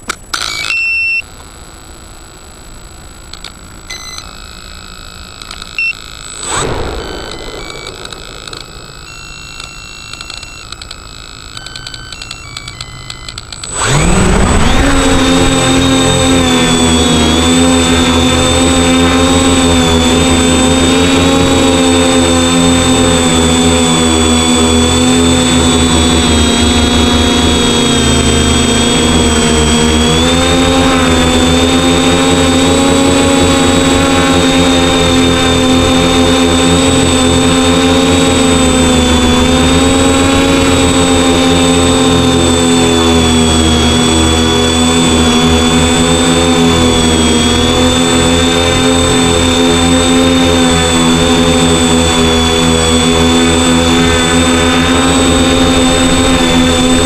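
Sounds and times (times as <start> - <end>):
quadcopter propellers buzzing: 0.0 - 57.0.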